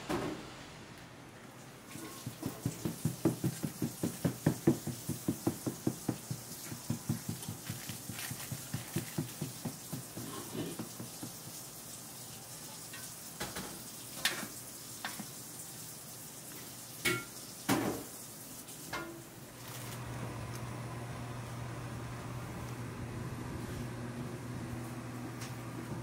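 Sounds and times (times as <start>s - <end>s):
mixing bowl scraping knocks: 2.0s - 11.5s.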